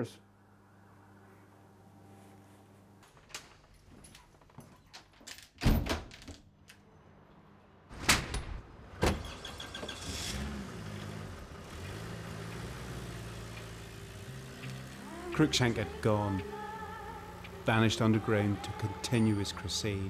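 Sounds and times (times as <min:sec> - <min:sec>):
door thudding shut: 0:05.6 - 0:06.1
van engine running: 0:09.3 - 0:20.0.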